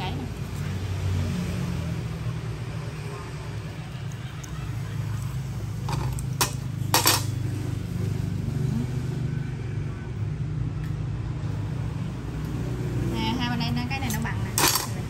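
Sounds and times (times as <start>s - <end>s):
metal hand tools clinking: 5.9s - 7.4s, 14.5s - 15.0s.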